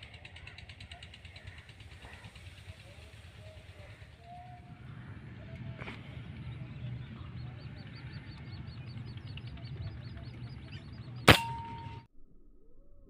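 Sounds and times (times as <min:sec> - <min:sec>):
low background hum: 0:00.0 - 0:12.1
thin ringing tone: 0:11.2 - 0:12.1
air rifle shot: 0:11.3 - 0:12.0.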